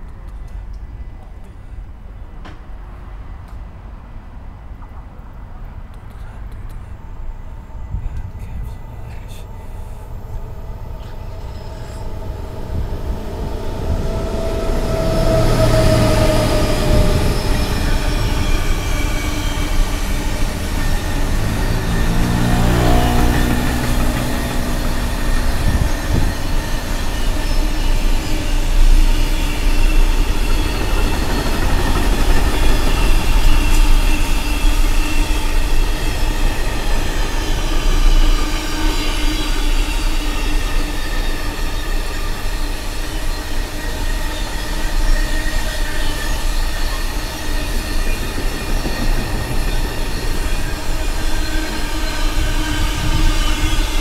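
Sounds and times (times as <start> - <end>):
high wheel squeal: 10.8 - 54.0
freight train wheels clattering: 11.1 - 54.0.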